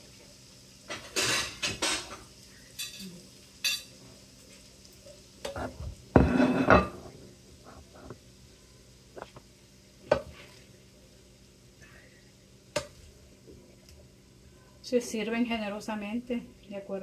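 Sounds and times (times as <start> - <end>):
plate clattering on counter: 0.9 - 2.2, 5.5 - 7.1
dishes and utensils scraping: 5.5 - 7.1.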